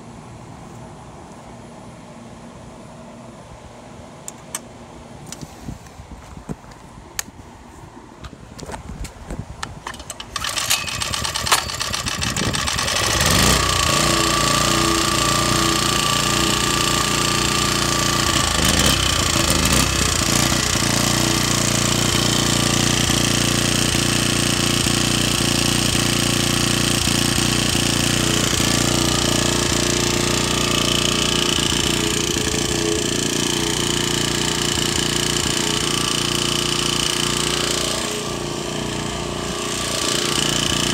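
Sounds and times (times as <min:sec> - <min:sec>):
generator control clicks: 0:04.2 - 0:04.7
generator engine running: 0:09.8 - 0:40.9.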